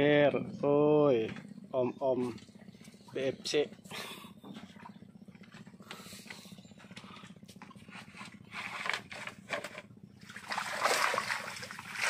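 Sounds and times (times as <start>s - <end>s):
low steady hum: 0.0s - 12.0s
water splashing and dripping: 10.2s - 12.0s.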